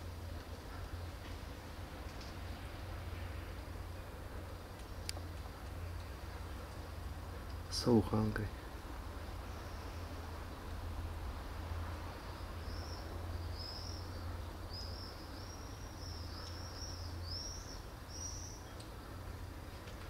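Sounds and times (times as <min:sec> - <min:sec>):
low background hum: 0:00.0 - 0:20.0
small bird chirping: 0:12.2 - 0:19.1.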